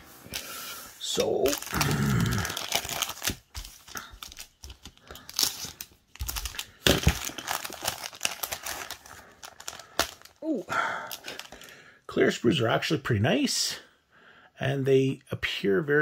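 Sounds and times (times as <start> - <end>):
plastic bag crinkling: 1.0 - 10.4, 11.1 - 11.7.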